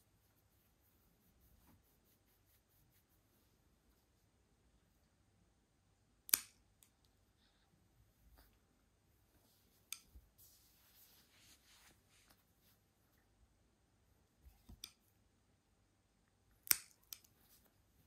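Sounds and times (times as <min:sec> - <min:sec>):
nail clippers clicking: 0:16.6 - 0:17.3.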